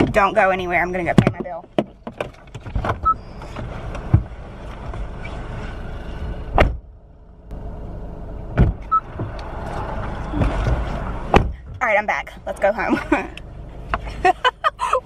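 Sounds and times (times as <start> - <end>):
car engine rumble: 0.0 - 15.0
car door shutting: 6.5 - 6.9, 8.5 - 11.8.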